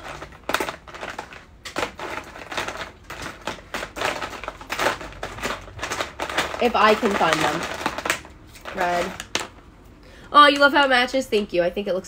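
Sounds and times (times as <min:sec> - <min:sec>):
plastic pens clicking and clattering: 0:00.0 - 0:09.6.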